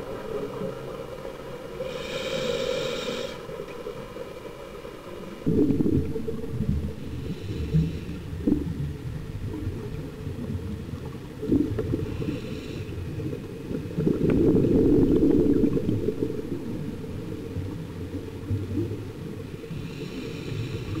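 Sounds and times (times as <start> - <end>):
regulator hiss: 1.8 - 3.6, 5.8 - 8.6
underwater breathing bubbles: 1.8 - 3.9, 5.4 - 10.0, 11.2 - 21.0.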